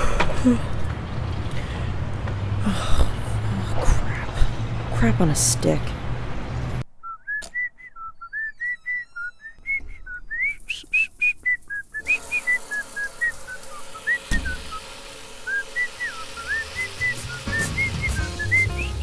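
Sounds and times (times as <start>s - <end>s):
person whistling a tune: 7.0s - 19.0s.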